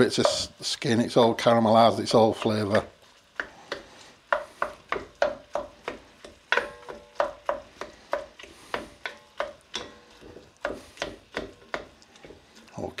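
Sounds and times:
wooden spoon knocking on pot: 0:00.0 - 0:00.5, 0:02.3 - 0:12.4.

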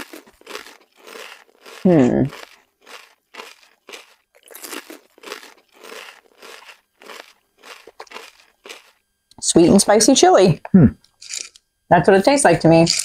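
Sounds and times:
potato chips crunching: 0:00.0 - 0:09.0.

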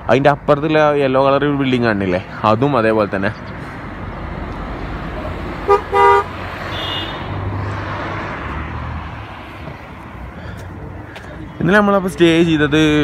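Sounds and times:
road traffic rumble: 0:00.0 - 0:13.0
vehicle horn toots: 0:05.6 - 0:07.3.

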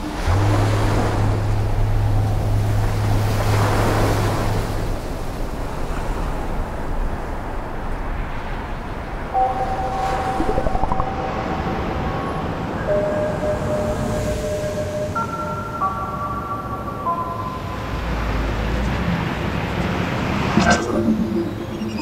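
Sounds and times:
low steady hum: 0:00.0 - 0:05.3
wind: 0:00.0 - 0:22.0.

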